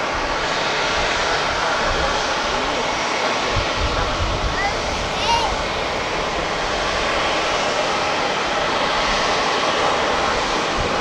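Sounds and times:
jet engines taxiing: 0:00.0 - 0:11.0.

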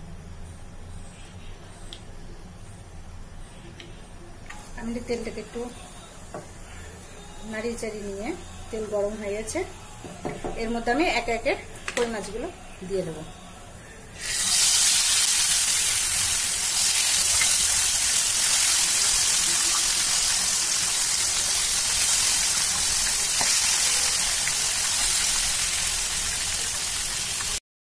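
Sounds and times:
fish sizzling in hot oil: 0:14.2 - 0:27.6.

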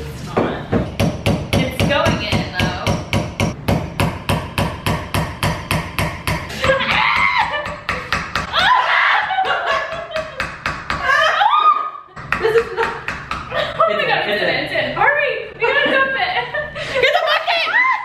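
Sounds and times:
hammer tapping metal: 0:00.7 - 0:08.5.

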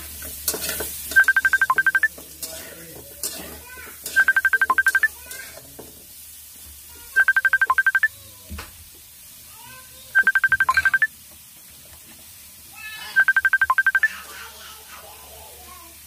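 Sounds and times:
metal spatula scraping a wok: 0:00.2 - 0:01.2, 0:02.2 - 0:04.2
phone ringtone beeps: 0:01.2 - 0:02.1, 0:04.2 - 0:05.1, 0:07.2 - 0:08.1, 0:10.2 - 0:11.1, 0:13.2 - 0:14.1.

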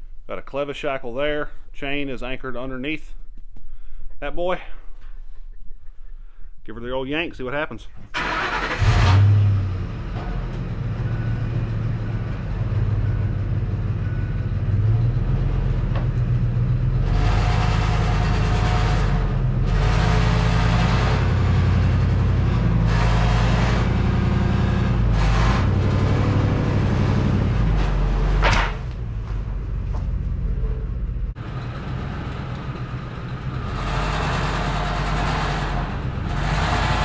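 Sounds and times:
pickup truck engine running: 0:08.2 - 0:37.0.

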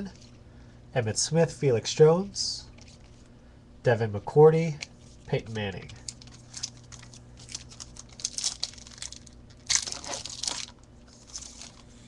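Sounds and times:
foil wrapper crinkling and tearing: 0:05.8 - 0:12.0.

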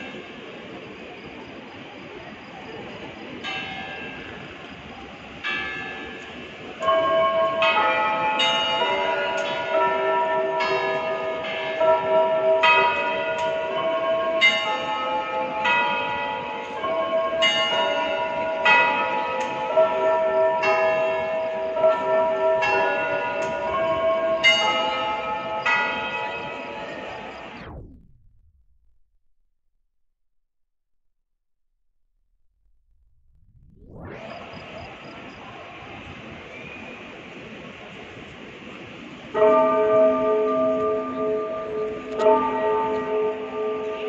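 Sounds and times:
church bells ringing: 0:00.0 - 0:00.9, 0:03.0 - 0:27.7, 0:38.3 - 0:44.0.

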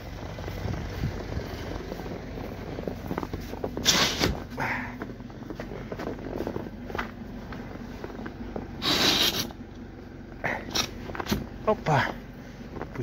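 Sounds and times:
car engine idling: 0:00.0 - 0:13.0.

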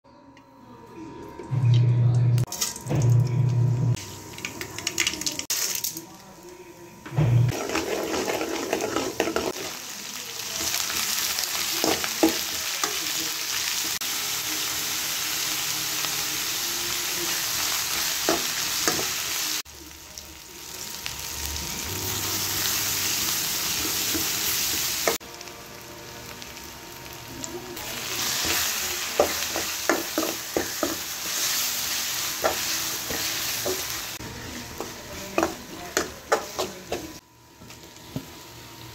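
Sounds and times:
spatula scraping a pan: 0:07.5 - 0:09.7
oil sizzling in a pan: 0:07.5 - 0:38.9.

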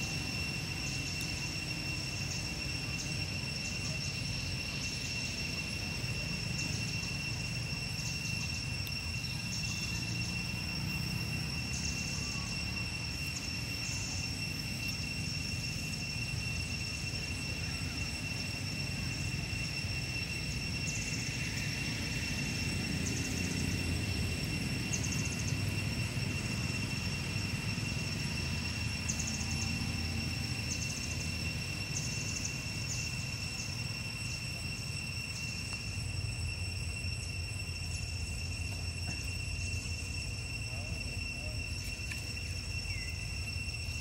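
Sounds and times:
high-pitched drone: 0:00.0 - 0:44.0
rapid chirping trills: 0:00.0 - 0:44.0.

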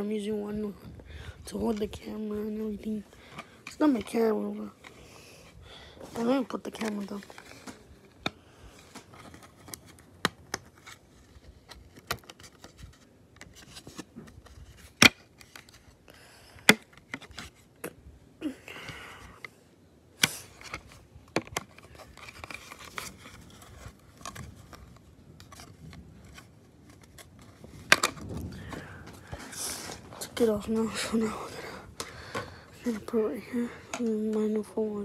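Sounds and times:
plastic clicks and scraping: 0:06.7 - 0:16.0, 0:20.2 - 0:30.4.

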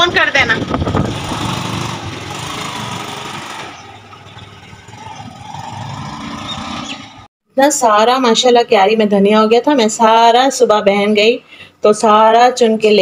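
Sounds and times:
small engine running: 0:00.6 - 0:07.2.

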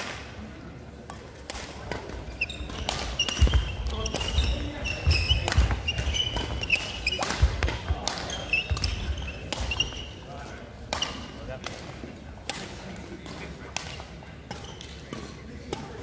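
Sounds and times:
rackets hitting shuttlecock: 0:00.0 - 0:16.0
shoes squeaking on wooden floor: 0:02.2 - 0:10.2.

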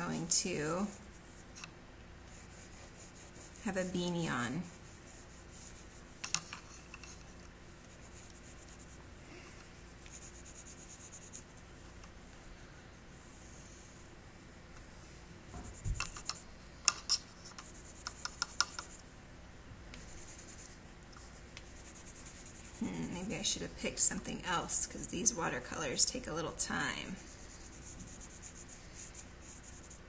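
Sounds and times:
pencil scratching on paper: 0:02.3 - 0:09.0, 0:09.8 - 0:11.6, 0:13.2 - 0:14.0, 0:15.6 - 0:16.4, 0:17.4 - 0:19.0, 0:20.0 - 0:23.5, 0:25.3 - 0:30.0.

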